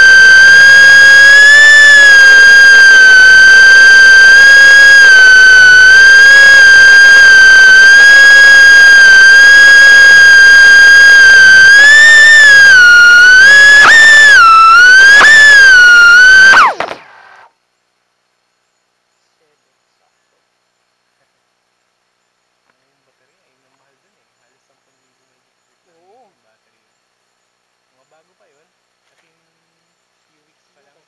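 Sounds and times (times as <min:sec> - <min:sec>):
drone motors whining: 0:00.0 - 0:17.5.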